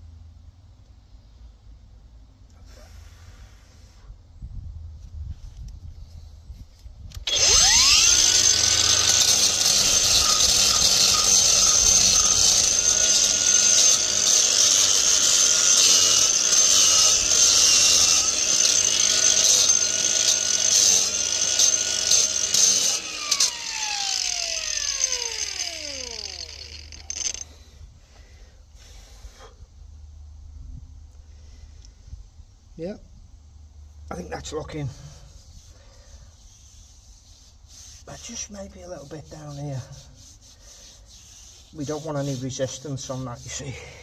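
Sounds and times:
angle grinder grinding cement: 0:07.3 - 0:27.5, 0:37.6 - 0:44.0.

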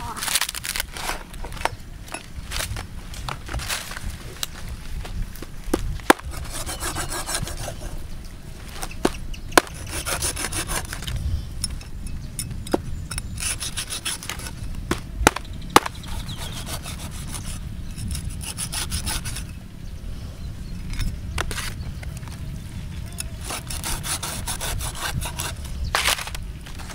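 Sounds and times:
knife sawing through flesh: 0:06.1 - 0:08.0, 0:09.6 - 0:11.1, 0:13.3 - 0:14.6, 0:15.8 - 0:19.5, 0:23.3 - 0:26.2.

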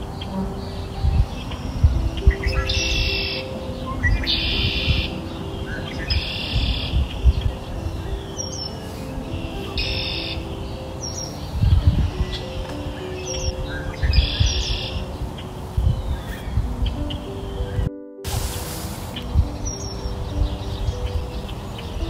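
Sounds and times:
birds chirping: 0:00.0 - 0:22.0
calm background music: 0:00.0 - 0:22.0.

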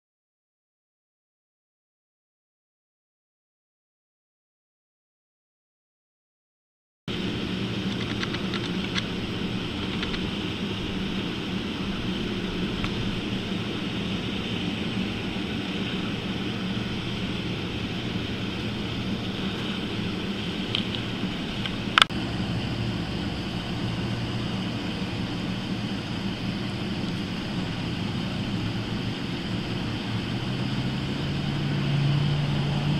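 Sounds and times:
low hum and hiss: 0:07.1 - 0:32.9.

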